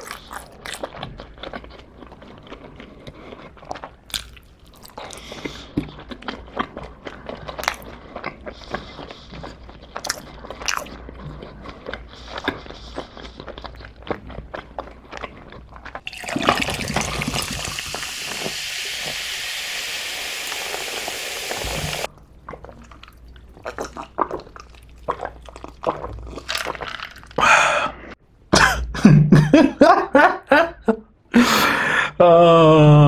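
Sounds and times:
water pouring into a glass: 0:16.0 - 0:22.1
person laughing: 0:28.6 - 0:33.0.

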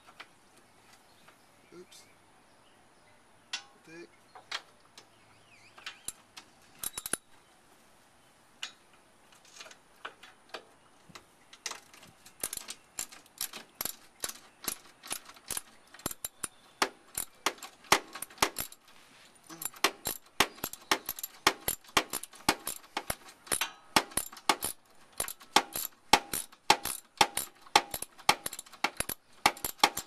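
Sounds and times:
ratchet wrench clicking: 0:06.8 - 0:07.2, 0:19.6 - 0:30.0.

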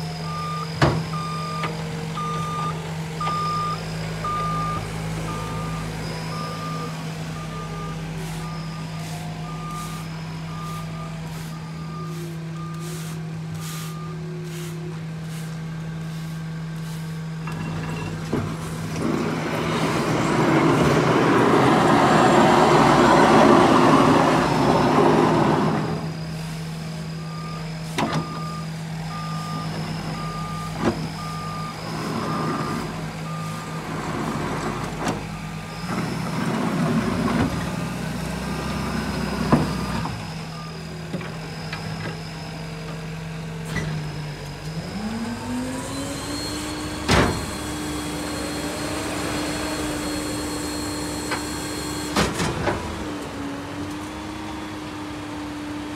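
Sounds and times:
diesel truck engine running: 0:00.0 - 0:55.9
backup alarm beeping: 0:00.2 - 0:14.2, 0:27.1 - 0:33.8.

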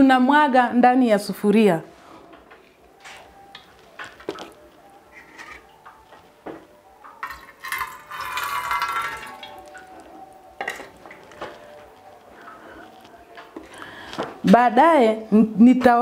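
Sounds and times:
liquid pouring into metal pot: 0:07.0 - 0:13.7
tin and bowl clinking on pots: 0:07.1 - 0:10.0, 0:10.6 - 0:11.7.

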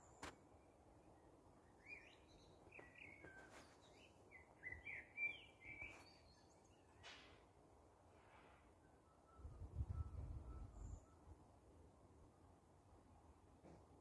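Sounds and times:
songbird chirping: 0:00.0 - 0:07.5, 0:08.8 - 0:11.4.

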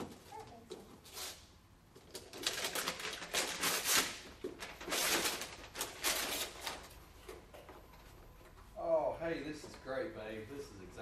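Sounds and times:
wrapping paper tearing and crinkling: 0:02.1 - 0:06.9.

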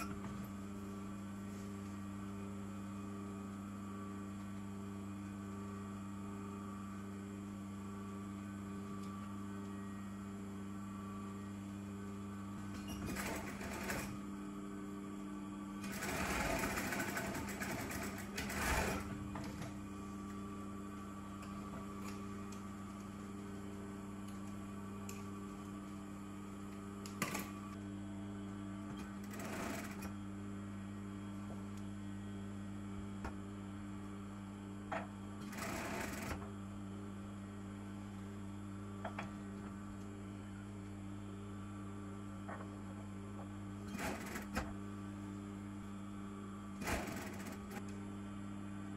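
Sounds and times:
sewing machine motor hum: 0:00.0 - 0:48.0
sewing machine stitching: 0:12.9 - 0:14.2, 0:15.8 - 0:19.7, 0:29.2 - 0:30.1, 0:35.5 - 0:36.4, 0:43.9 - 0:44.7, 0:46.8 - 0:47.8.

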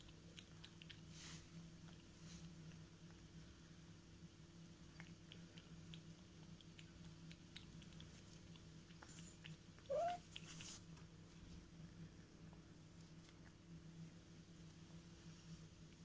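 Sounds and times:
cat lapping milk: 0:00.0 - 0:11.0
low steady hum: 0:00.0 - 0:16.0.

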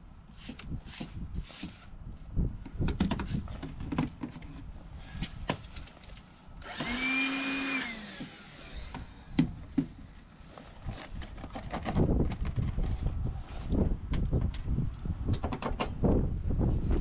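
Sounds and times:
drills being handled and set down: 0:02.8 - 0:10.1
electric drill motor whine: 0:06.6 - 0:09.5.

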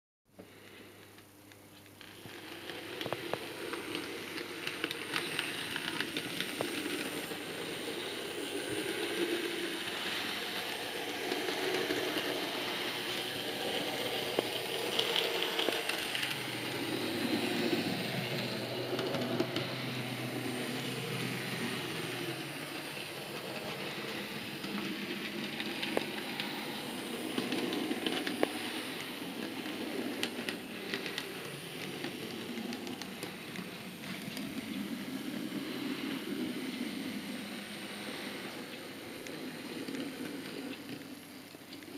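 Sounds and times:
model train motor whirring: 0:02.0 - 0:41.9.

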